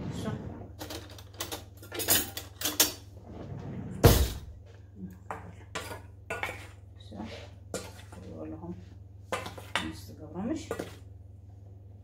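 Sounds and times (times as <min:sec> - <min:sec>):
dishes and utensils clinking: 0:00.8 - 0:03.1
loud thump: 0:04.0 - 0:04.5.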